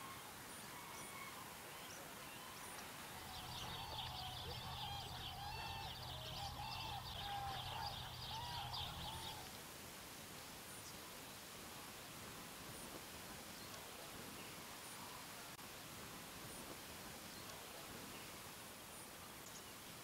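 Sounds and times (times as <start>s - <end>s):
flock of birds calling: 0.0s - 9.6s.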